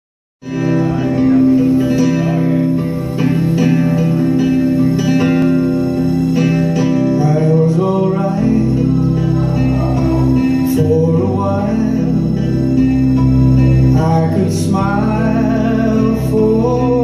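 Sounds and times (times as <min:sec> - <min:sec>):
bass notes: 0:00.4 - 0:17.0
plucked guitar backing track: 0:00.4 - 0:17.0.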